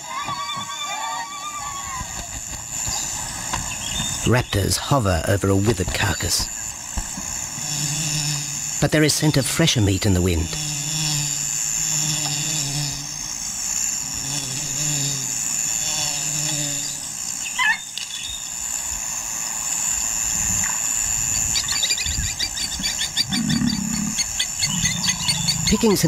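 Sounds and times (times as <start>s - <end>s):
high insect drone: 0.0s - 26.0s
rapid high chirring pulses: 0.0s - 26.0s.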